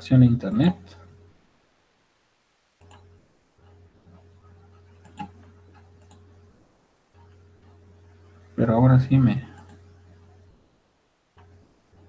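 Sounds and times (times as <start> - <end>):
low electrical hum: 0.0 - 12.0
computer mouse clicks: 2.8 - 6.3, 9.5 - 9.9, 11.4 - 12.0.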